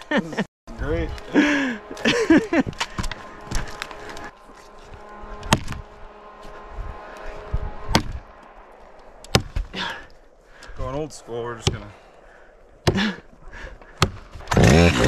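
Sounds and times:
axe striking log: 5.5s - 5.8s, 9.3s - 9.7s, 11.6s - 11.9s, 12.8s - 13.2s, 13.9s - 14.8s.

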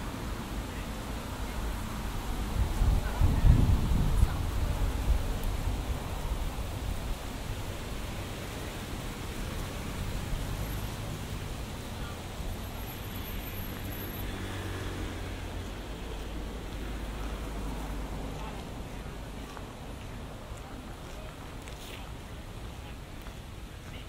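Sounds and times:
road traffic rumble and hiss: 0.0s - 24.0s.

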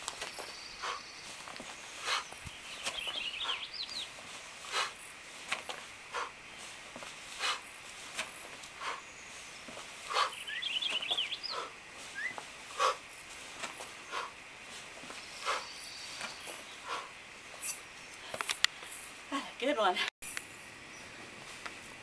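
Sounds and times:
small bird twittering: 0.3s - 4.2s, 8.8s - 13.0s.

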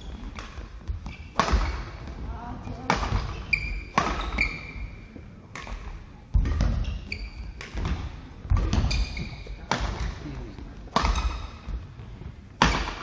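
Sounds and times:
shoe squeaks on floor: 0.0s - 0.4s, 3.2s - 5.1s, 6.8s - 7.6s, 8.8s - 9.7s
racket hitting shuttlecock: 0.2s - 2.2s, 2.8s - 10.2s, 10.9s - 12.0s, 12.6s - 13.0s.

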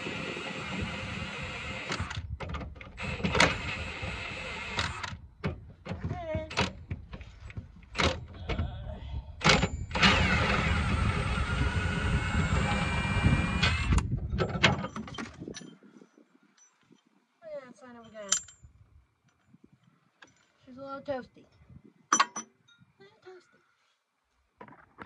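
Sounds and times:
mechanical whirring: 9.8s - 14.1s
metal knocks and clanks: 14.2s - 15.7s.

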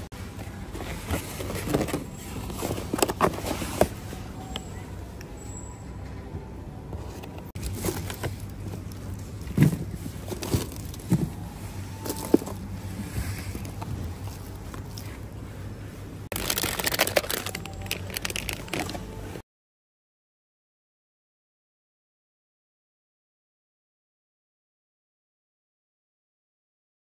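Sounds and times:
low steady hum: 0.0s - 19.4s
plastic packaging crinkling: 16.3s - 19.0s.

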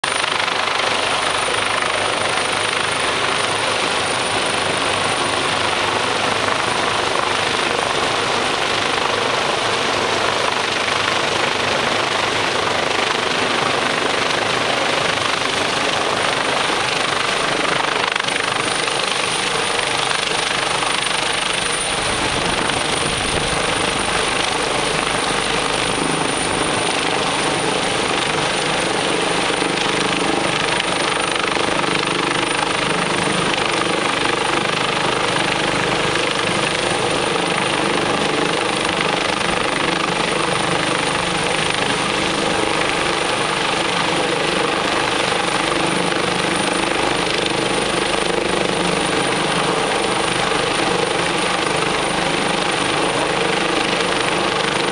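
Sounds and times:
helicopter hovering overhead: 0.0s - 54.9s
wind buffeting microphone: 21.9s - 25.2s.

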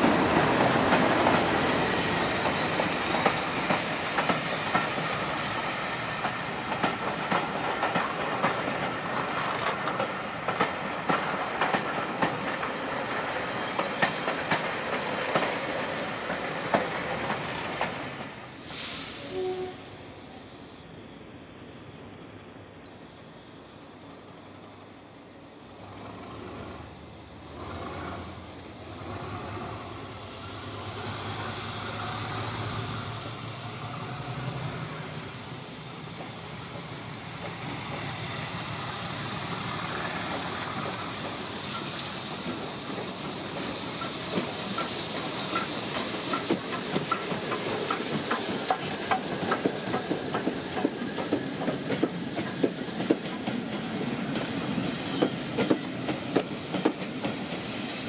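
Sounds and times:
train wheels clicking over rail joints: 0.0s - 18.7s, 35.4s - 58.0s
steam locomotive hissing: 0.0s - 22.0s, 23.0s - 58.0s.

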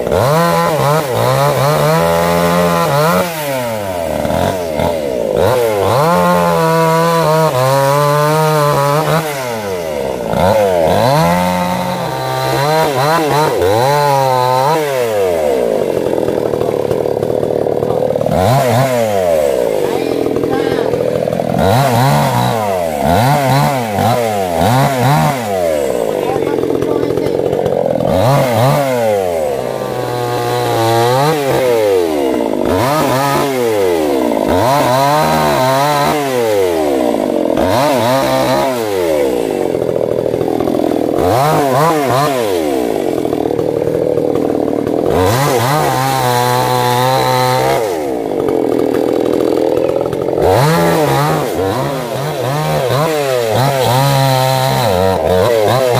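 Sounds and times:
chainsaw cutting branches: 0.0s - 55.9s.

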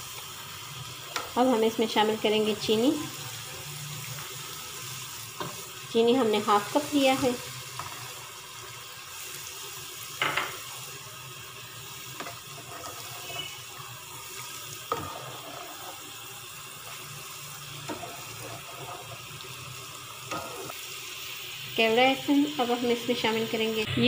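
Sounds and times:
steady watery hiss: 0.0s - 23.8s
spoon stirring in metal pot: 12.2s - 13.6s, 14.9s - 16.0s, 17.8s - 19.3s, 20.2s - 20.8s.

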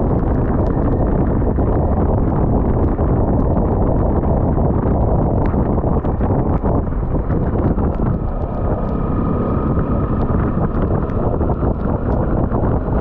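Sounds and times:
motorcycle engine running: 0.0s - 13.0s
wind over microphone: 0.0s - 13.0s.

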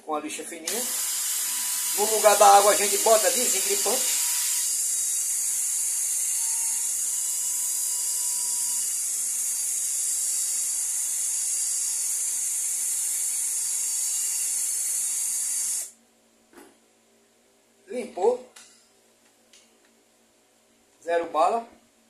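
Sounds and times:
cordless drill running: 0.7s - 16.0s
sandpaper hissing on shaft: 0.8s - 5.2s.

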